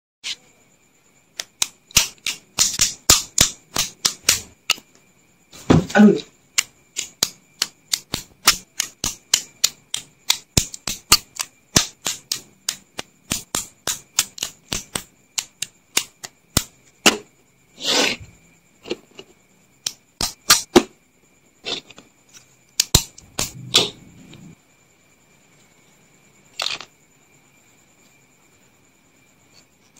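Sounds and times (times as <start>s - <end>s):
plastic bricks clicking together: 26.6s - 26.9s.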